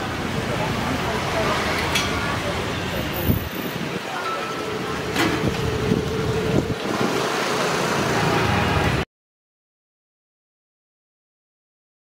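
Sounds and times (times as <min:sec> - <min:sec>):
road traffic rumble: 0:00.0 - 0:09.1
wind on microphone: 0:03.2 - 0:04.1, 0:05.3 - 0:07.3.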